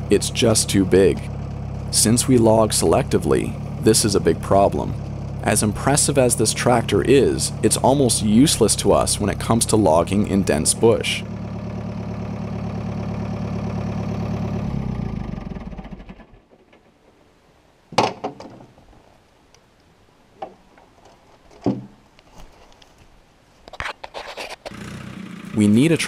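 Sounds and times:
tractor diesel engine running: 0.0 - 17.1, 24.7 - 26.0.

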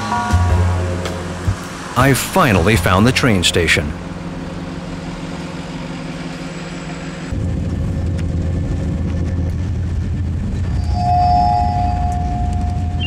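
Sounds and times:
train rumbling from inside carriage: 6.2 - 13.0.

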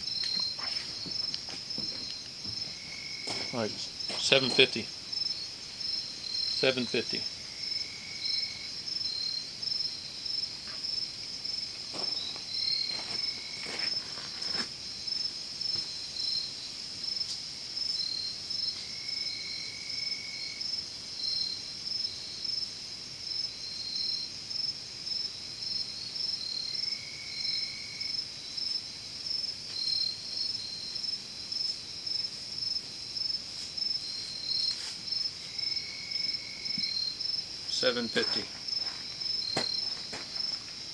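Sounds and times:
insects high-pitched trilling: 0.0 - 40.9
low drawn-out insect call: 0.0 - 40.9.

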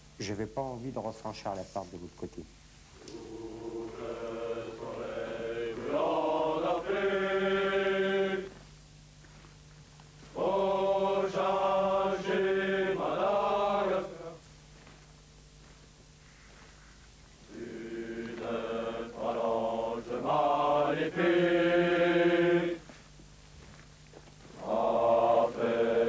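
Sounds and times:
men singing in unison: 3.1 - 8.5, 10.4 - 14.4, 17.5 - 22.8, 24.6 - 26.0.

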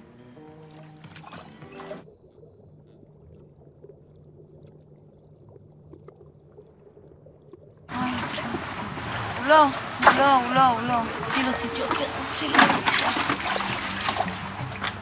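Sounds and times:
music: 0.0 - 2.1, 10.5 - 15.0
low underwater hum: 0.0 - 15.0
dolphin whistles: 1.2 - 2.9.

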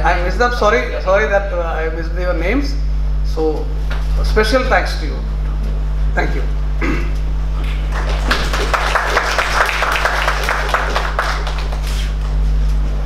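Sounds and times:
audience applauding: 7.6 - 12.2.

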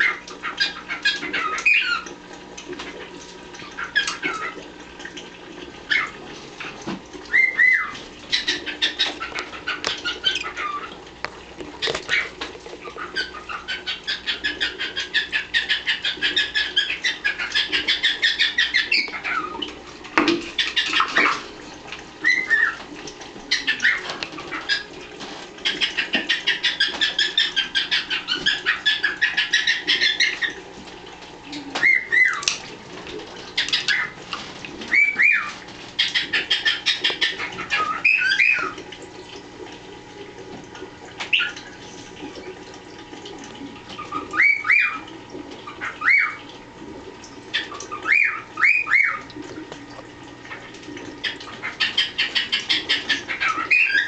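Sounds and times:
parrots chirping: 0.0 - 2.0, 7.3 - 10.9, 11.8 - 19.7, 22.2 - 22.8, 23.5 - 24.9, 25.6 - 30.6, 31.5 - 32.6, 33.5 - 34.2, 34.9 - 38.8, 41.3 - 42.0, 44.0 - 46.4, 47.5 - 49.3, 51.2 - 54.0
whistled bird calls: 7.3 - 9.1, 31.5 - 32.5, 34.9 - 38.8, 44.0 - 45.1, 45.9 - 46.4, 47.6 - 49.3, 51.2 - 54.0.

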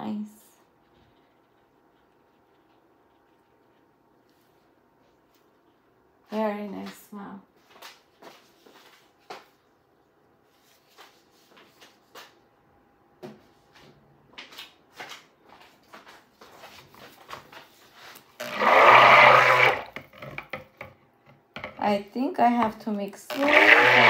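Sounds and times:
stick blender running: 18.4 - 20.1, 23.3 - 24.0.

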